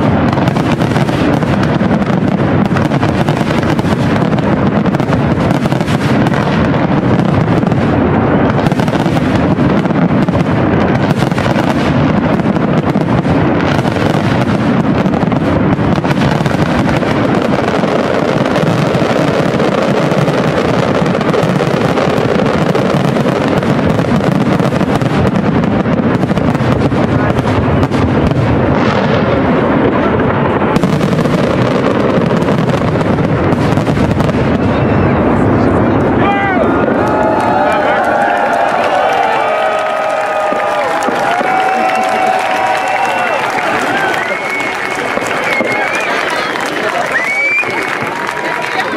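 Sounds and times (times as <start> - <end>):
firework shells bursting: 0.0 - 34.8.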